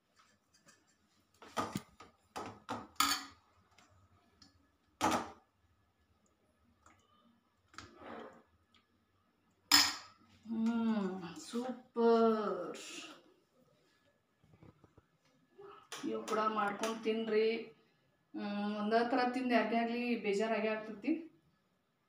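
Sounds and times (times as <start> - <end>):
metal spoon clinking on plate: 3.0 - 3.4.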